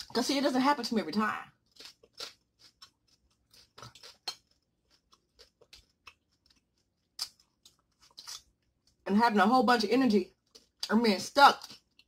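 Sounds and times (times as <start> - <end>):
faint chewing: 1.5 - 9.1, 10.2 - 11.0, 11.6 - 12.0
small wet clicks and crackles: 1.6 - 9.1.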